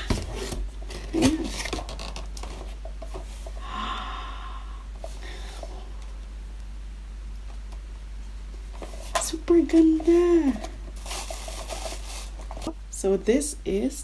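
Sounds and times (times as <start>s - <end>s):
person gasping: 3.6s - 5.7s
breathy exhale: 3.6s - 5.9s.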